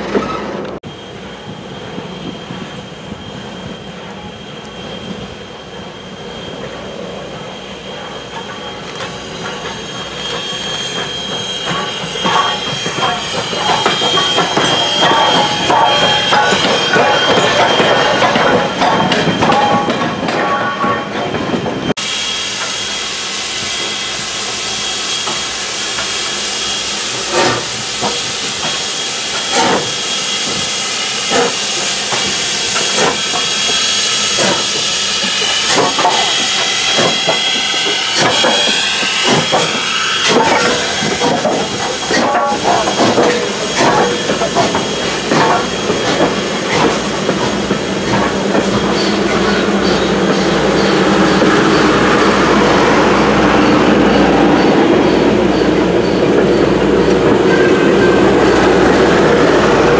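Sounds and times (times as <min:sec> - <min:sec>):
steam hissing: 0:01.0 - 0:59.9
train wheels clicking and knocking: 0:08.0 - 0:21.8, 0:27.1 - 0:59.9.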